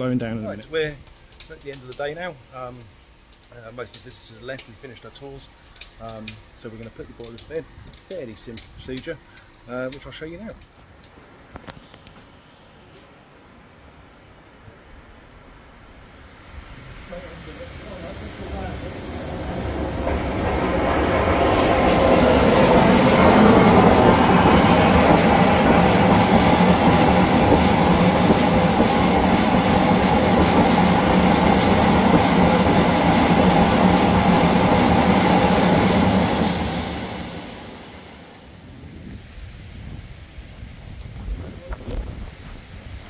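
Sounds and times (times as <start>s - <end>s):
steam and water rushing from valve: 11.1s - 38.7s.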